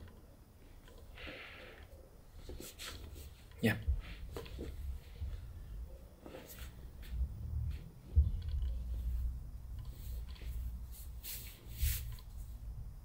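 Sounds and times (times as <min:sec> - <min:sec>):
faint clicks and creaks: 0:00.0 - 0:03.6, 0:06.6 - 0:10.8
short rustle: 0:10.0 - 0:12.4.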